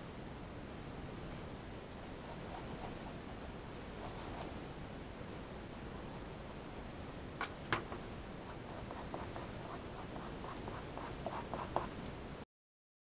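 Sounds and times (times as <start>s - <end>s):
pencil scratching on paper: 1.8s - 4.5s, 8.5s - 11.9s.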